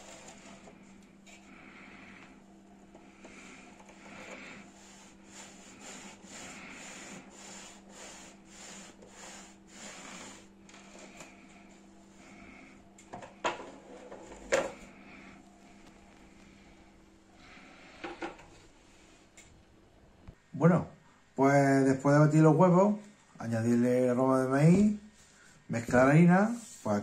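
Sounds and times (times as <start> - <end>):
rolling table plates scraping: 0.0 - 0.8.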